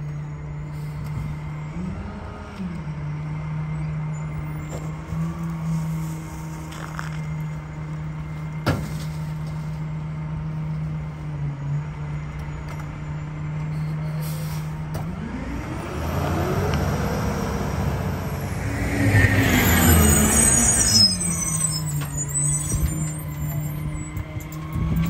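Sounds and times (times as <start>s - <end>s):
garbage truck engine idling and revving: 0.0s - 25.0s
high squeaks of packer: 18.9s - 24.4s.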